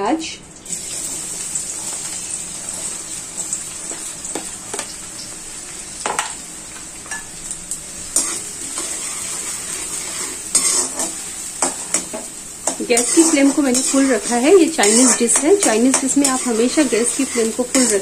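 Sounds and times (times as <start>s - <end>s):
onion sizzling in hot oil: 0.6s - 18.0s
spoon knocking and scraping pan: 2.7s - 4.9s, 6.0s - 6.4s, 8.2s - 18.0s.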